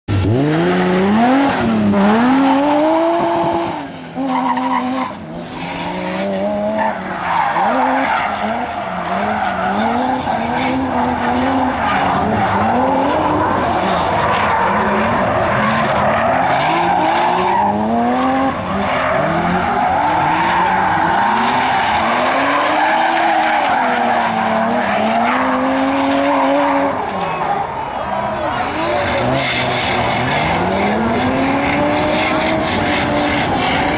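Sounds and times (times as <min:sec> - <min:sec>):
car engines revving hard: 0:00.1 - 0:33.9.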